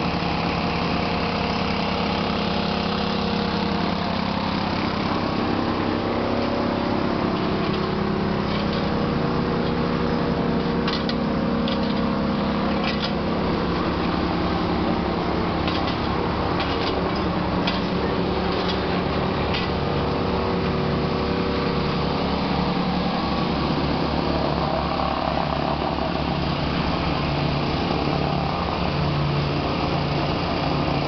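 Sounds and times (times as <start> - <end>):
plate compactor engine running: 0.0 - 31.0.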